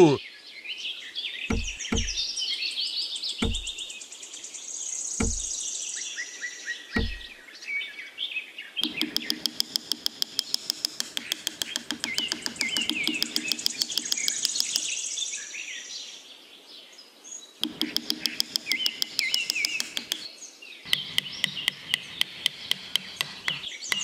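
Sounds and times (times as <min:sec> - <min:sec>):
birds chirping: 0:01.3 - 0:06.0, 0:06.8 - 0:07.5, 0:08.8 - 0:15.4, 0:17.6 - 0:24.0
rapid even ticking: 0:01.5 - 0:02.2, 0:03.4 - 0:03.8, 0:05.2 - 0:05.6, 0:07.0 - 0:07.3, 0:08.8 - 0:14.9, 0:17.6 - 0:20.3, 0:20.9 - 0:24.0.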